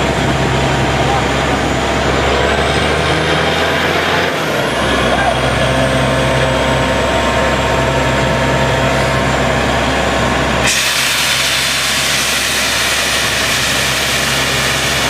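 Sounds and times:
drilling rig engine hum: 0.0s - 15.0s
loud hiss of rushing air: 10.6s - 15.0s.

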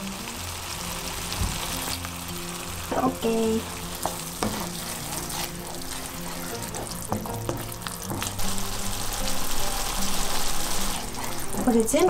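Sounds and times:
food sizzling in a frying pan: 0.0s - 12.0s
spatula scraping and tapping pan: 4.0s - 8.4s.

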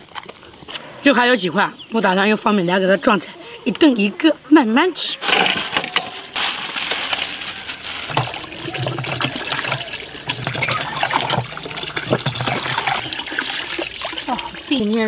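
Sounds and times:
water gushing from pump spout: 5.2s - 15.0s.

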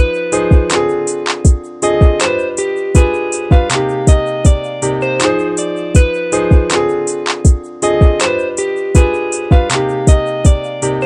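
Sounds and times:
background music with strong beat: 0.0s - 11.0s.

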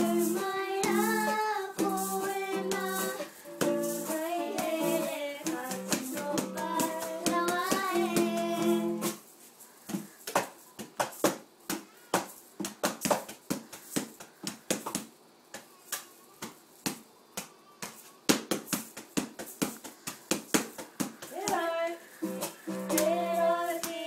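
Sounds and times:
poi tapping against body: 5.4s - 8.8s, 9.9s - 21.7s.

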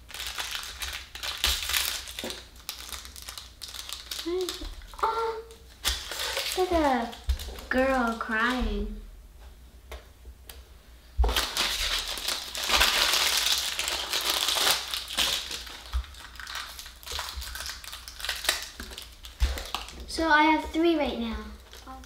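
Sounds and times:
plastic packet crinkling: 0.0s - 8.6s, 11.2s - 20.1s, 21.6s - 22.0s.

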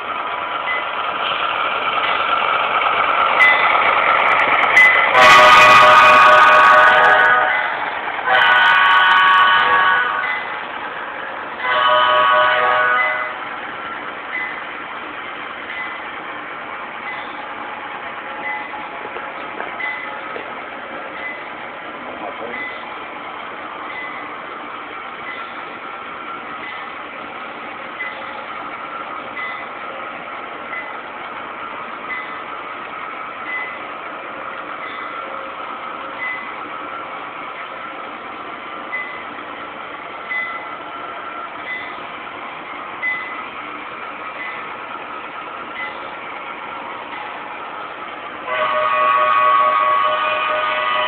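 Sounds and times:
locomotive horn chord: 5.1s - 10.4s, 11.6s - 13.4s, 48.4s - 51.0s.

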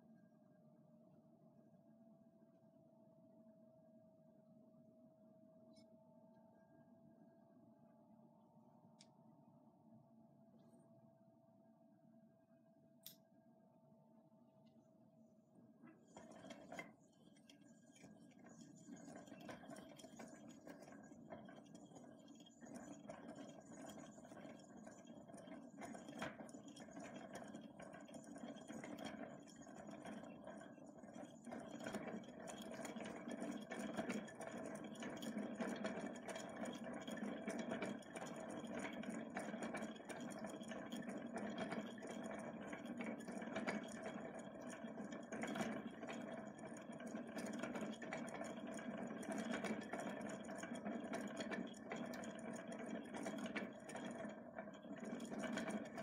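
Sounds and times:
hand-cranked reel gears whirring: 16.0s - 56.0s.

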